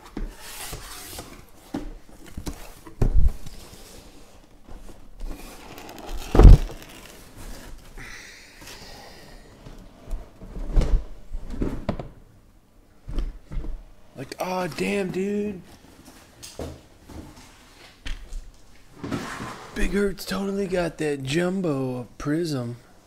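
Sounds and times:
boxes thumping down: 0:06.1 - 0:07.0.

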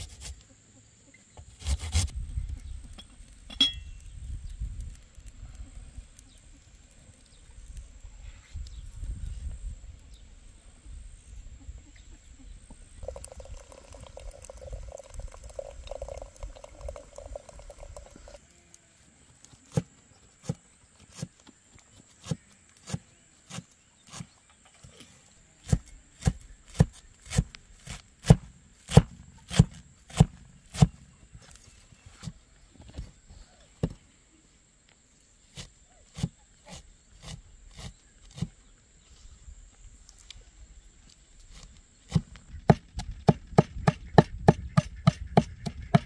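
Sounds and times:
tea pouring into glass: 0:13.0 - 0:18.4
cleaver chopping on wooden board: 0:25.7 - 0:31.0.

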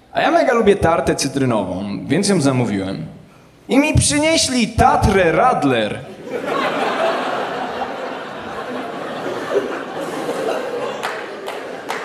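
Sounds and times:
audience laughing: 0:06.1 - 0:12.0
scattered claps: 0:11.0 - 0:12.0.

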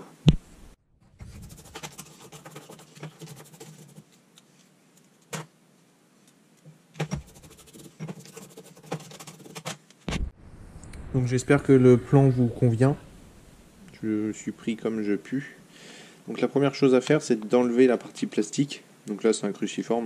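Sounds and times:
toothbrush scrubbing metal: 0:01.2 - 0:04.2, 0:07.0 - 0:09.7.

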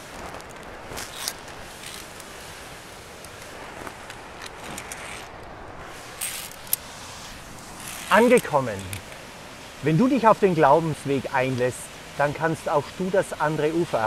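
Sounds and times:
waterfall rushing: 0:05.3 - 0:14.0.

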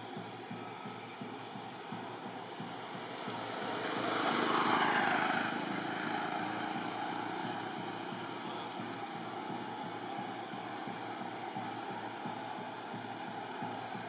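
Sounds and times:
vehicle passing on road: 0:02.8 - 0:10.1.

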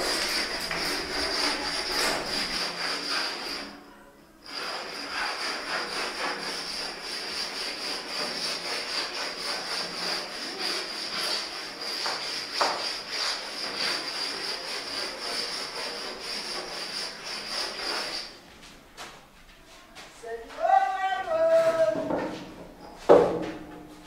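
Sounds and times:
sharp scrape: 0:00.0 - 0:03.8, 0:04.4 - 0:18.4
paint roller rubbing: 0:00.0 - 0:18.4.

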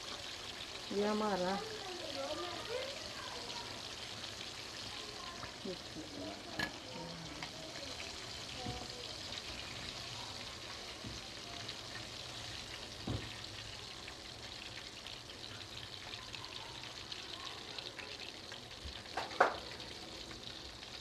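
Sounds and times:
chicken deep-frying in oil: 0:00.0 - 0:21.0
knock: 0:13.0 - 0:13.3.

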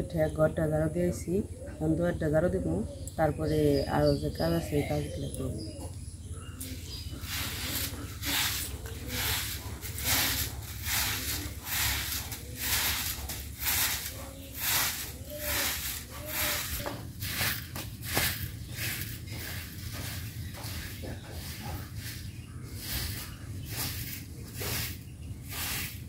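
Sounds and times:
broom sweeping earth ground: 0:06.6 - 0:26.0.

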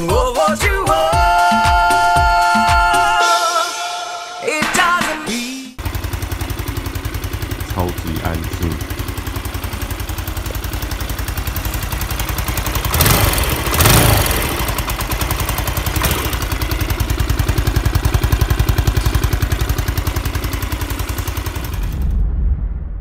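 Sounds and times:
scooter engine idling: 0:05.8 - 0:22.0.

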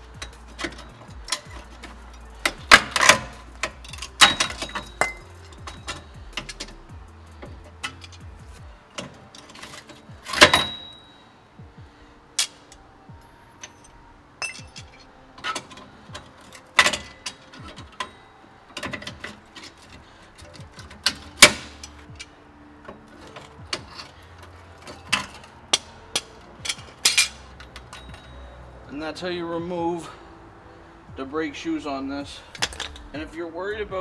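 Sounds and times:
sharp metal clanks: 0:00.0 - 0:08.3, 0:09.0 - 0:11.2, 0:13.6 - 0:19.8, 0:20.4 - 0:22.3, 0:24.8 - 0:28.5
metal clicks and clinks: 0:00.1 - 0:08.3, 0:13.6 - 0:28.6.

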